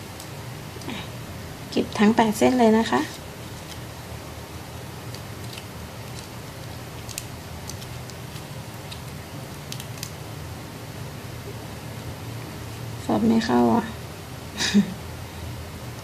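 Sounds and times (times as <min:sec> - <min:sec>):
low room hum: 0:00.0 - 0:16.0
plastic ribbon rustling: 0:01.9 - 0:04.1, 0:04.9 - 0:10.2.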